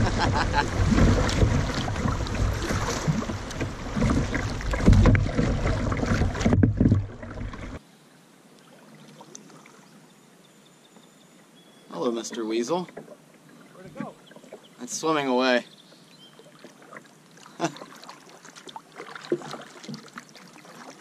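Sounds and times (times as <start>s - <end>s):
river water rushing: 0.0s - 7.8s.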